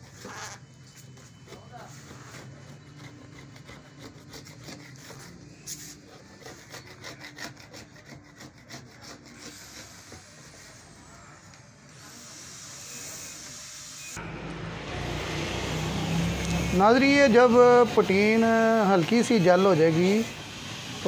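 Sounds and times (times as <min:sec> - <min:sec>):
putty knife scraping: 0:00.0 - 0:10.9.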